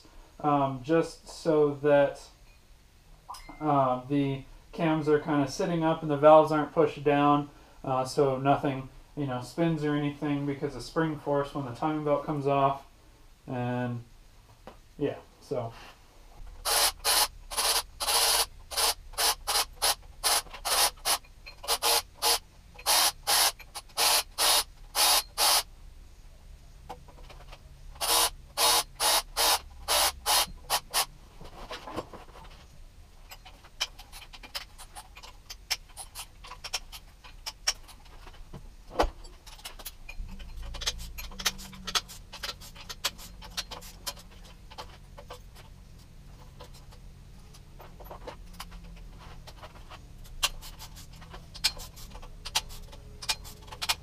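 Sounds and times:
socket ratchet clicking: 0:16.6 - 0:25.7, 0:28.0 - 0:31.1, 0:50.2 - 0:54.0.

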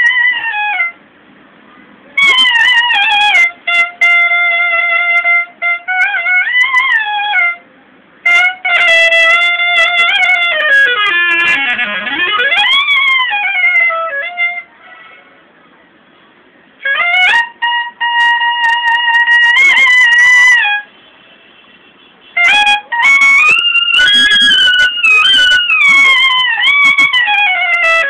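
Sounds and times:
solo clarinet playing: 0:02.1 - 0:07.6, 0:08.2 - 0:15.3, 0:16.8 - 0:20.9, 0:22.3 - 0:28.0.

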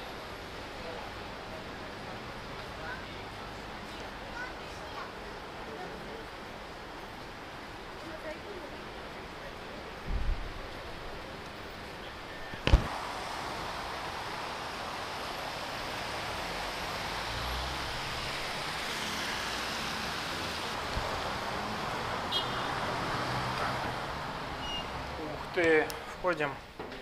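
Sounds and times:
city street traffic hum: 0:00.0 - 0:27.0.

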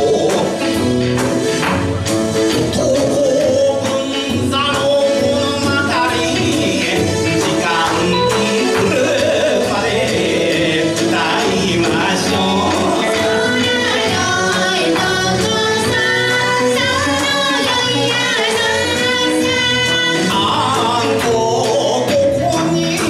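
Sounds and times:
man singing into a microphone: 0:00.0 - 0:00.8, 0:02.6 - 0:13.6, 0:20.0 - 0:23.0
steady percussive beat: 0:00.0 - 0:23.0.

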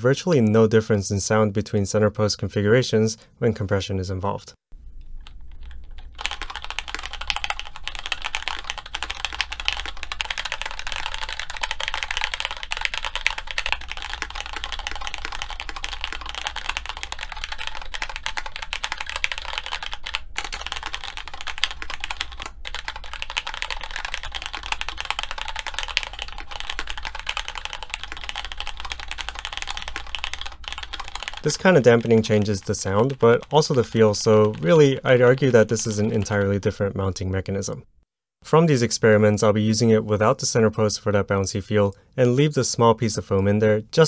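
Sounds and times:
fast typing on mechanical keyboard: 0:05.2 - 0:36.7.

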